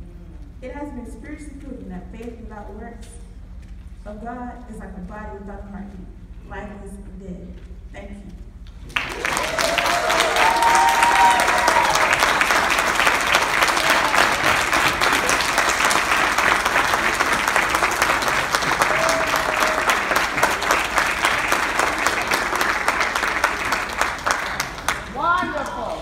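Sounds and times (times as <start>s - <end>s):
congregation applauding: 8.8s - 26.0s.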